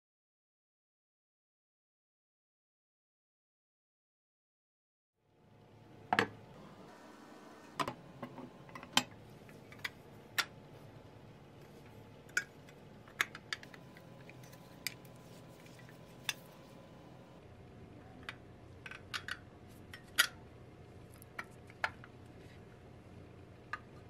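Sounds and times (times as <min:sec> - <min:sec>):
faint steady hum: 0:05.2 - 0:24.0.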